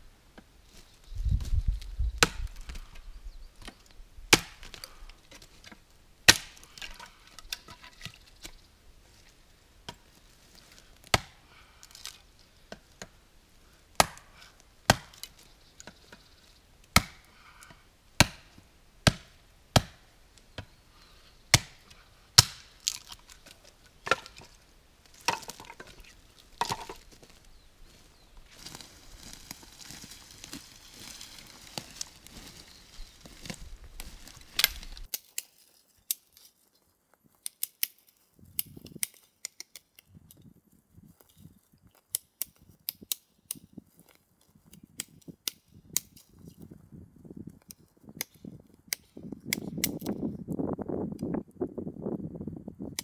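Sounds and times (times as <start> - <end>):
blade chopping wood: 4.3 - 4.8, 6.3 - 7.0, 11.0 - 11.4, 14.0 - 16.0, 16.9 - 17.3, 18.2 - 20.0, 21.5 - 21.8, 22.4 - 23.2, 25.2 - 26.0, 26.6 - 27.0.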